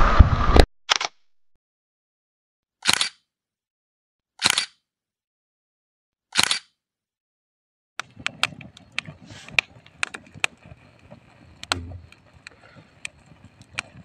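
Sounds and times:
campfire crackling and popping: 8.0 - 14.0
low rumble of flame: 8.0 - 14.0.

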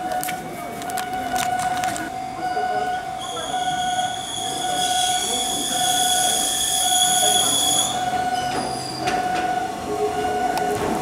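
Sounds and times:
level crossing alarm ringing: 0.0 - 11.0
train wheels squealing: 2.5 - 9.4.

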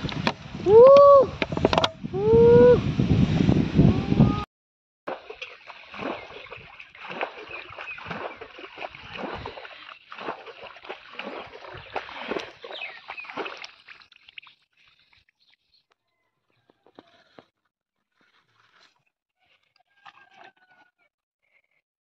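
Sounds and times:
muddy water splashing: 5.1 - 15.8.

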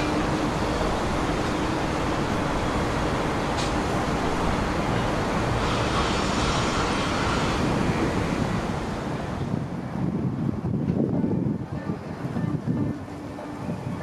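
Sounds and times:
distant traffic: 0.0 - 9.7
wind: 0.0 - 14.0.

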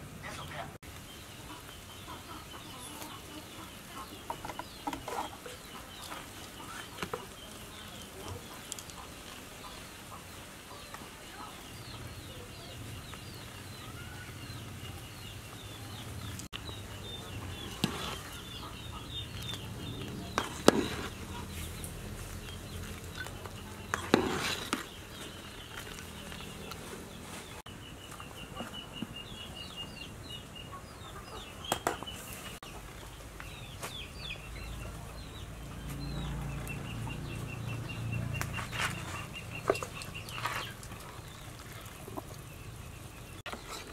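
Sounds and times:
chickens clucking: 0.2 - 43.9.

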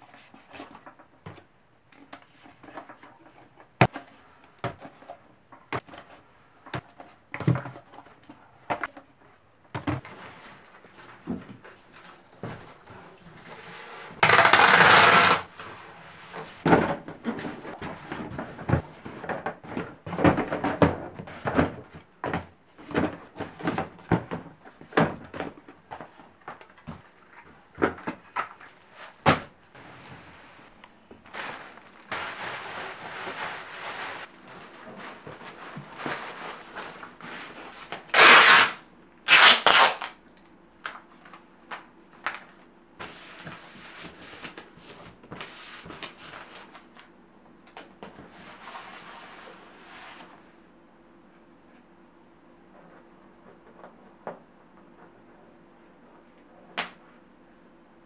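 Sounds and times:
packing tape pulled off tape gun: 14.2 - 15.5, 38.1 - 40.2
cardboard boxes knocking and rustling: 16.6 - 26.2.

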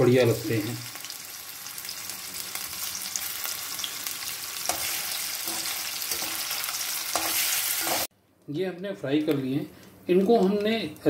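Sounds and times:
cheese cubes sizzling in oil: 0.0 - 8.1
metal spoon stirring in pan: 4.6 - 8.1.

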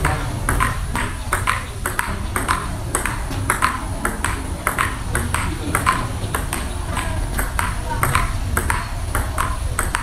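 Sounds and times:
table tennis ball clicking: 0.0 - 10.0.

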